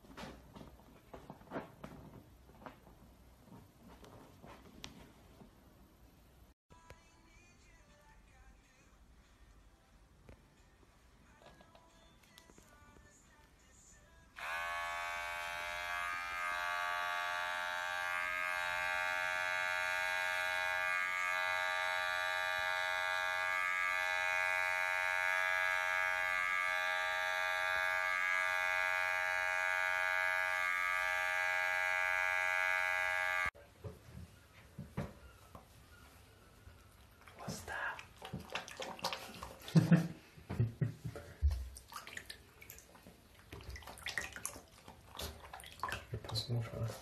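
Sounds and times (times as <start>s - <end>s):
electric hair clippers buzzing: 14.4s - 33.6s.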